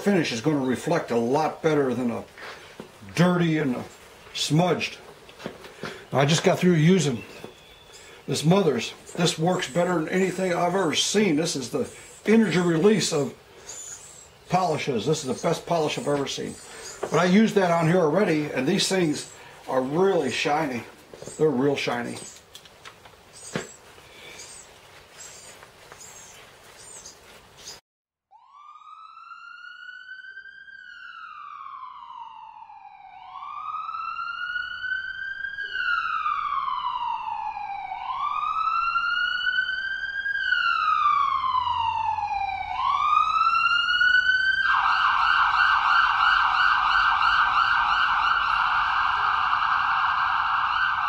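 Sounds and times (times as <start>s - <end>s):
emergency vehicle siren: 0.0s - 22.4s, 28.3s - 51.0s
faint clicks and rustling: 22.1s - 24.1s.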